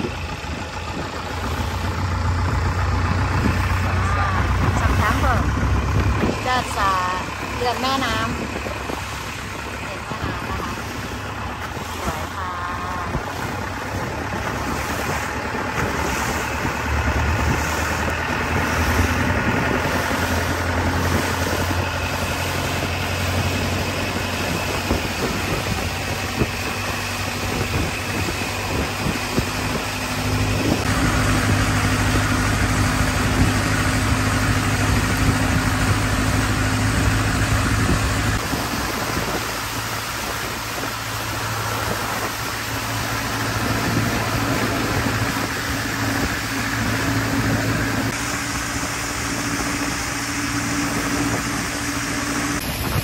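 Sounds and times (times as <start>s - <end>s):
boat engine running: 0.0s - 53.0s.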